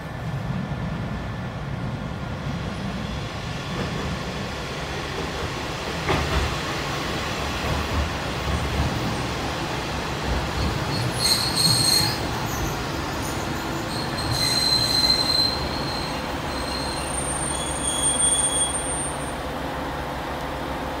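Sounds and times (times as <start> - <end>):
train running rumble: 0.0 - 17.4
train wheels squealing on rails: 10.4 - 19.5.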